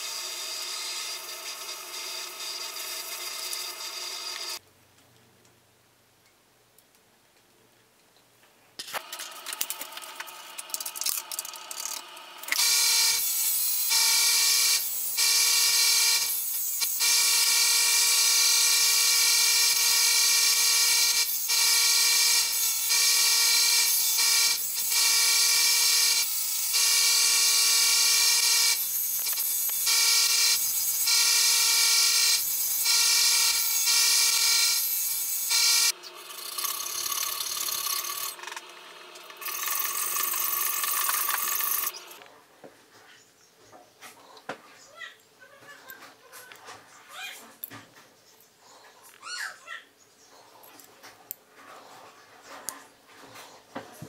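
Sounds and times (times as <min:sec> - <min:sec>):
belt sander whining: 0:11.6 - 0:42.3.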